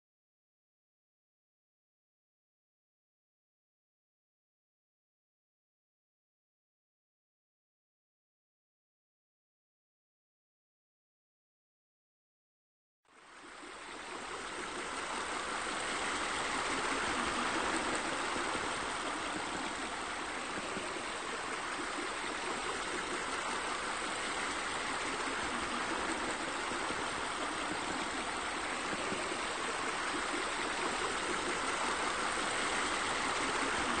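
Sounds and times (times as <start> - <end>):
water running over rock: 14.0 - 34.0.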